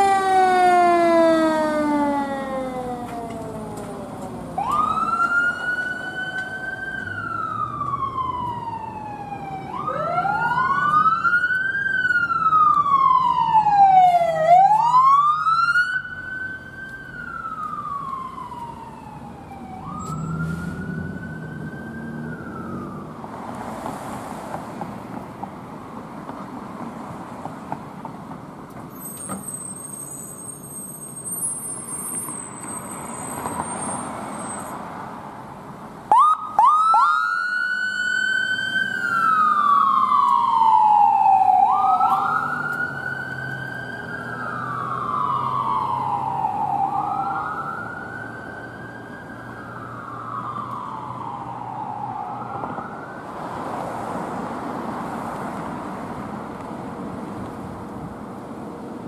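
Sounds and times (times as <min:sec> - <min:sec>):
siren blasts and wailing: 0:00.0 - 0:23.2, 0:36.1 - 0:53.3
passing road traffic: 0:00.0 - 0:59.0.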